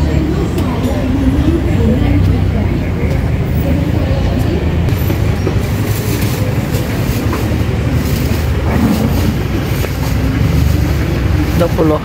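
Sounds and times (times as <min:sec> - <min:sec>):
loud low rumble: 0:06.4 - 0:11.8.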